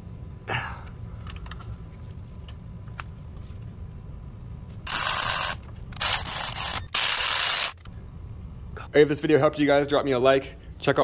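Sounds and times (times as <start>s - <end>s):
cordless electric ratchet running: 4.9s - 7.8s.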